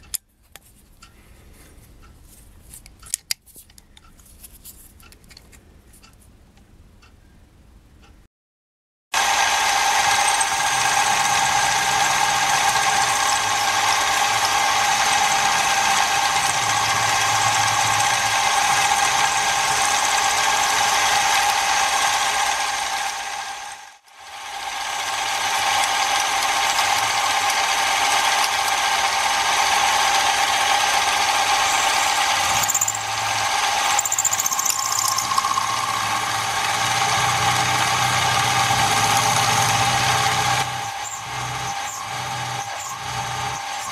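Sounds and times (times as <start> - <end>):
milling machine cutting metal: 9.2 - 43.9.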